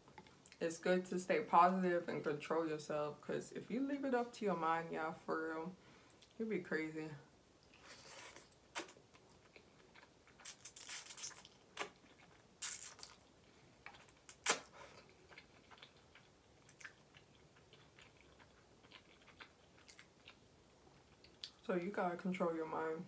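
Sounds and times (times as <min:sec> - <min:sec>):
wet mouth noises: 0:07.7 - 0:13.2, 0:13.9 - 0:14.8
chewing noodles: 0:07.7 - 0:21.6.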